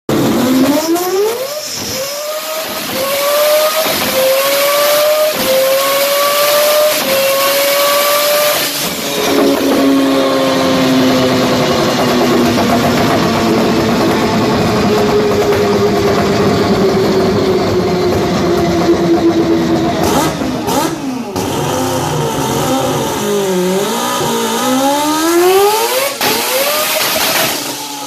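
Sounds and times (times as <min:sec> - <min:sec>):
rotary engine screaming: 0:00.1 - 0:28.0.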